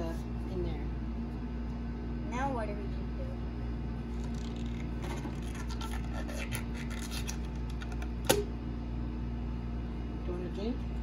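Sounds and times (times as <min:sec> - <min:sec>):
rubber balloon scratching: 0:04.2 - 0:07.6
balloon snapping: 0:08.2 - 0:08.5.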